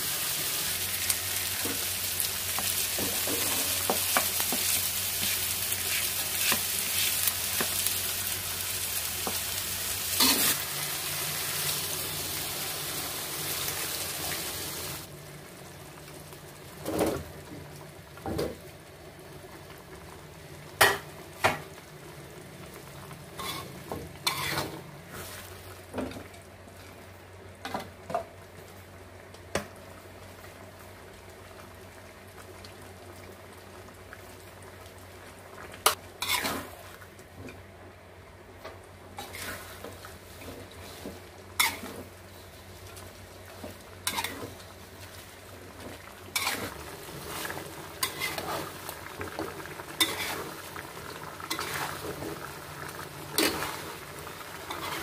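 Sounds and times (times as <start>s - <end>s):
paste sizzling in a wok: 0.0s - 16.9s, 20.7s - 25.9s, 35.8s - 37.1s, 39.1s - 55.0s
metal spatula scraping wok: 10.2s - 10.6s, 23.4s - 24.8s, 36.2s - 36.7s, 41.6s - 42.1s, 46.4s - 46.7s, 48.0s - 48.8s, 50.0s - 50.4s, 54.7s - 55.0s.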